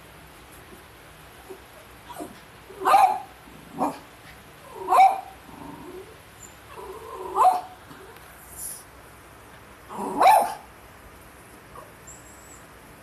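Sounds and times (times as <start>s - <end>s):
small dog barking: 1.5s - 4.1s, 4.7s - 5.4s, 6.8s - 8.1s, 9.9s - 10.7s.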